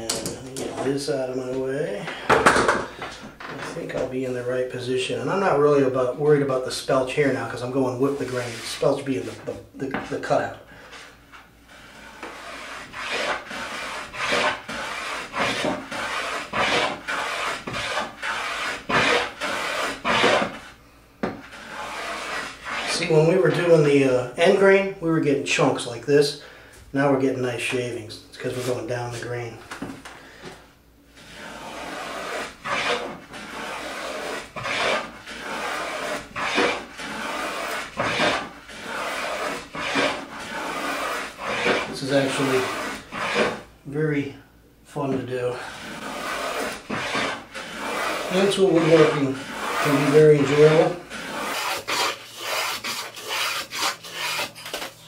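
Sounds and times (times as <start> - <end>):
hand plane rasping on wood: 11.8 - 20.6, 21.5 - 23.7, 31.2 - 43.7, 45.6 - 54.9.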